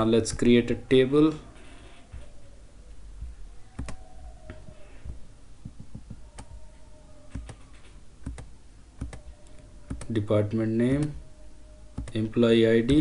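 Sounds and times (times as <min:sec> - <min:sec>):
faint background hum: 0:00.0 - 0:13.0
computer mouse clicking: 0:03.8 - 0:06.6, 0:07.3 - 0:10.1, 0:12.0 - 0:12.2.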